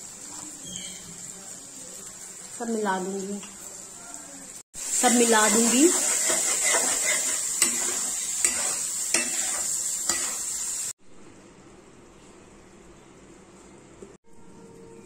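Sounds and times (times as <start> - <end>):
masala sizzling in hot oil: 0.0 - 11.0
metal spatula scraping a pan: 5.2 - 10.5.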